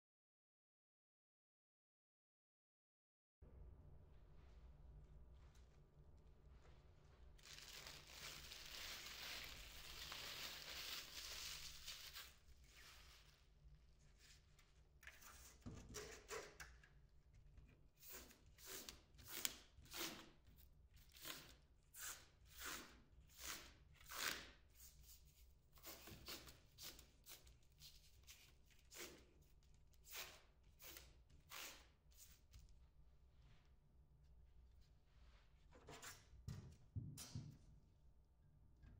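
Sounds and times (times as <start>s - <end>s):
plastic wrapping crinkling: 7.4s - 13.3s.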